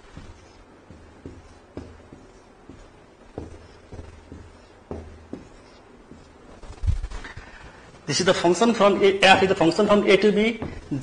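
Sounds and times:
writing taps and strokes on board: 0.0 - 6.7.

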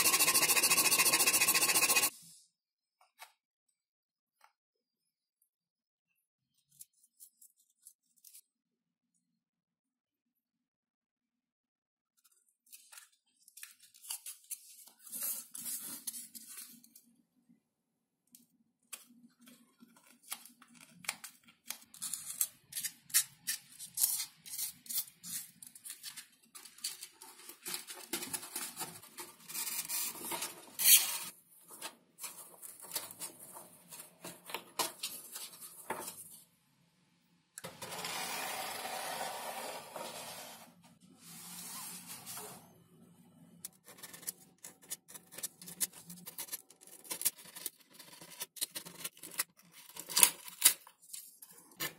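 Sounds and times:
foam rubbing and scraping: 0.0 - 2.1.

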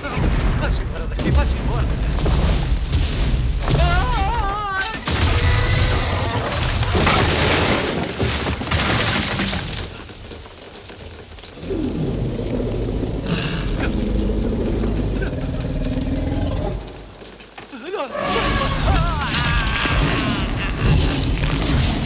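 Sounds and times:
wooden walls smashing: 0.0 - 11.5
heavy rain: 0.0 - 22.0
low drawn-out sounds: 11.4 - 17.2.

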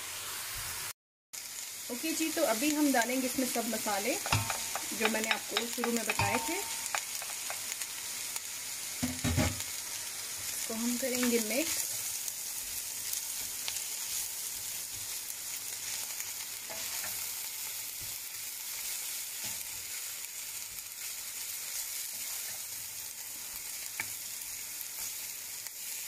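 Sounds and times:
vegetables sizzling in oil: 0.0 - 26.0
spoon clicking against pan: 4.2 - 7.8.

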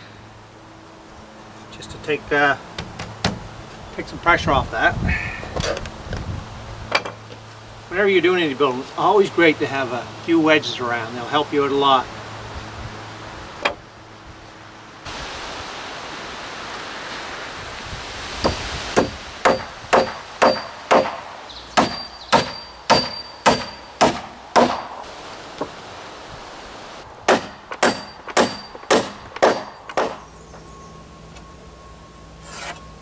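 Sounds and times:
hammer driving nails into wood: 19.0 - 21.2, 21.8 - 25.0, 27.3 - 30.2.

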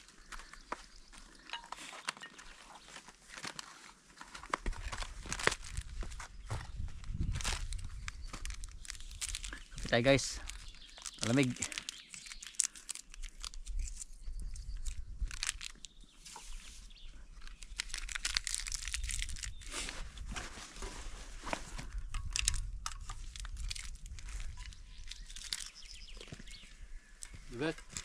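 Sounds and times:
plastic packaging crinkling: 3.3 - 6.3, 7.2 - 14.2, 14.8 - 16.0, 17.4 - 20.0, 22.2 - 26.4.

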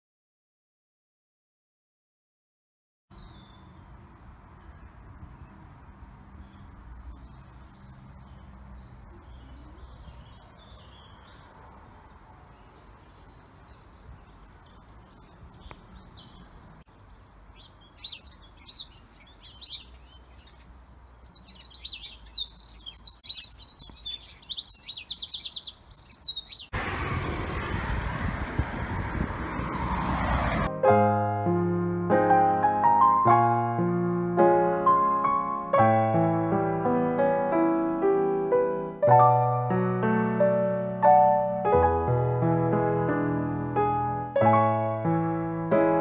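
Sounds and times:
songbirds chirping and singing: 3.1 - 26.8
piano music: 30.6 - 46.0.

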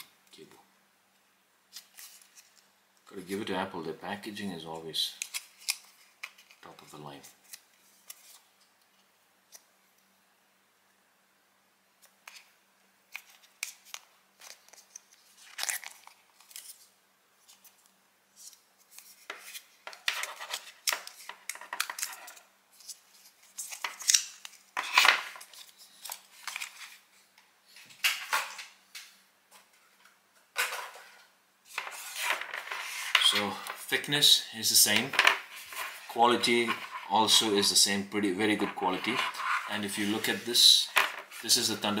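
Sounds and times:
cable packaging clicks and scrapes: 13.1 - 16.9, 18.4 - 27.0, 38.5 - 40.4.

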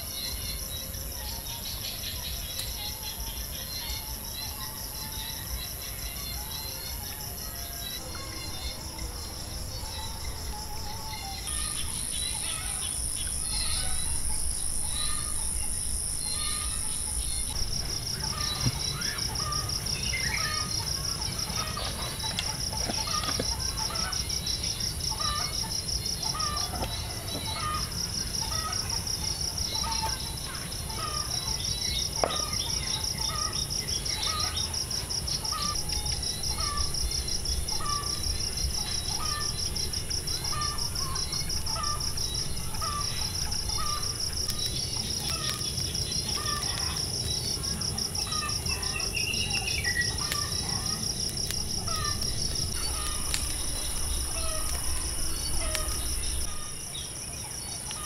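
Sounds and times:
crickets trilling: 0.0 - 58.0.

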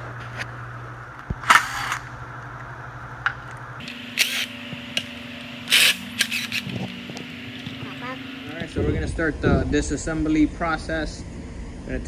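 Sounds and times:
steady low hum: 0.0 - 12.0
power driver spinning bolts: 3.8 - 7.8.

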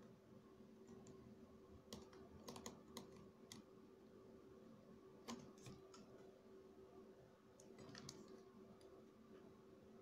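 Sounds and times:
faint steady hum: 0.0 - 10.0
small clicks and taps on circuit board: 1.9 - 3.7.

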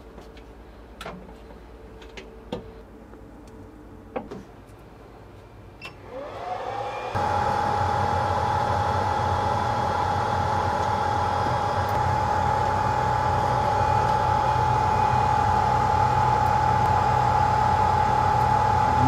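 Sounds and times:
hot-air blowers rushing: 6.0 - 19.0
constant whine: 6.2 - 19.0
low hum: 7.1 - 19.0.

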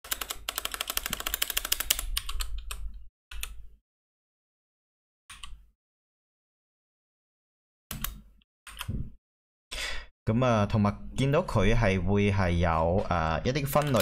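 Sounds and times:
computer keyboard typing: 0.0 - 2.8, 13.7 - 14.0.

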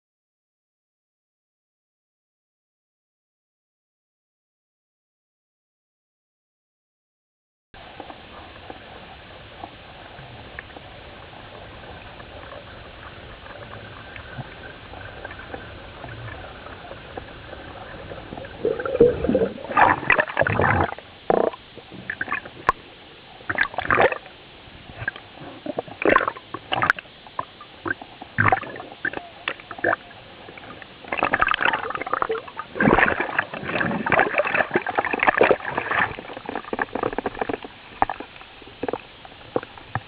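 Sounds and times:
faint water hiss: 7.8 - 40.0
gurgling air bubbles: 11.6 - 22.8, 23.5 - 24.3, 24.9 - 40.0.

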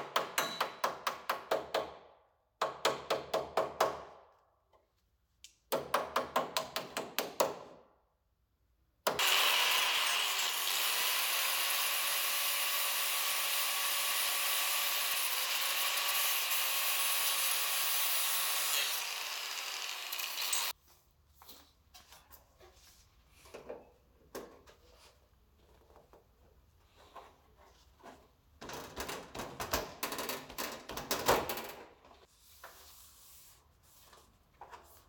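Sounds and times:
angle grinder on steel: 9.2 - 20.7.

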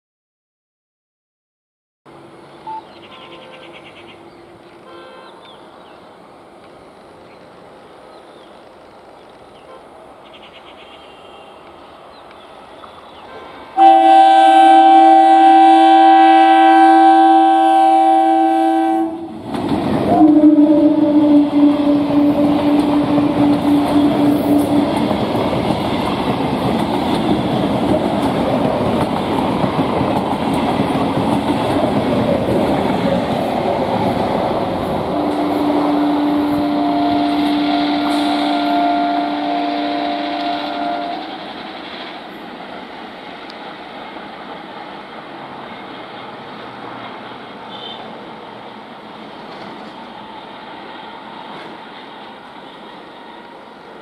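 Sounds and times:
train air horn blast: 4.8 - 5.4, 11.0 - 11.7, 13.3 - 19.4, 20.1 - 25.4, 35.0 - 41.4, 47.7 - 48.1
train rumble: 11.6 - 54.0
lower horn note: 13.8 - 19.4, 20.1 - 25.4, 35.1 - 41.4
wheels clattering on rails: 19.4 - 20.4, 21.8 - 35.6, 40.3 - 45.8.

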